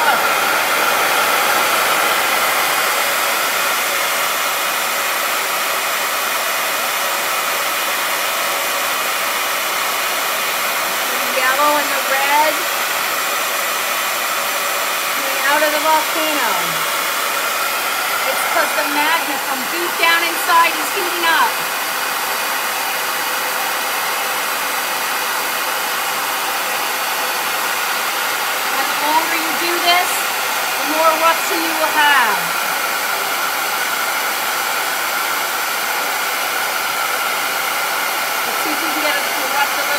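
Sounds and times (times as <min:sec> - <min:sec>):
hair dryer running: 0:00.0 - 0:39.9
person speaking: 0:11.1 - 0:12.7, 0:15.2 - 0:17.0, 0:18.2 - 0:21.6, 0:28.7 - 0:32.6, 0:38.5 - 0:39.9.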